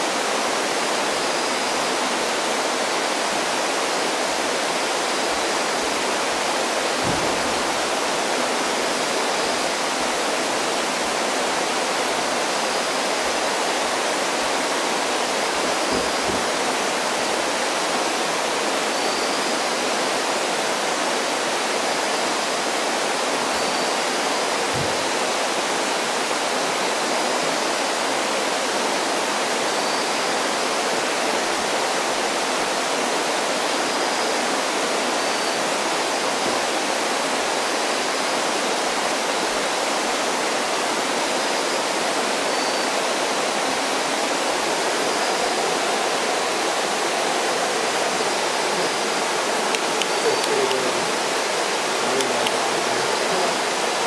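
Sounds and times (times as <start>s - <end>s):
steady hiss: 0.0s - 54.0s
high-pitched animal calls: 49.7s - 53.6s.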